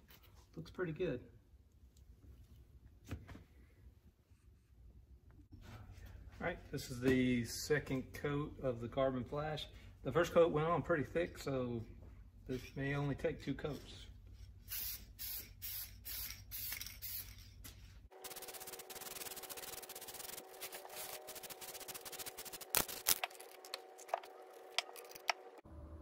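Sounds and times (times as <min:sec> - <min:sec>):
aerosol spray can hissing: 0:14.7 - 0:17.3, 0:18.2 - 0:23.2.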